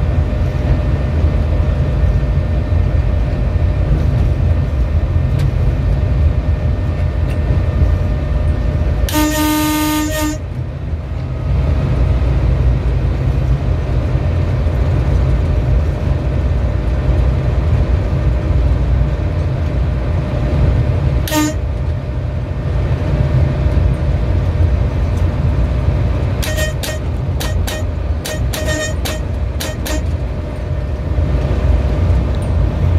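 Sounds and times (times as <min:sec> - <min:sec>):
train rumbling on track: 0:00.0 - 0:32.9
train horn toot: 0:09.1 - 0:10.6, 0:21.2 - 0:21.7, 0:26.4 - 0:30.2.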